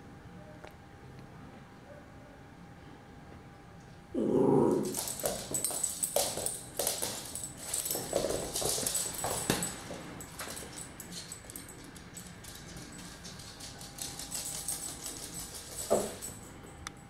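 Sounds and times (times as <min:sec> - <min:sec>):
dog claws skittering on floor: 0:04.2 - 0:16.5.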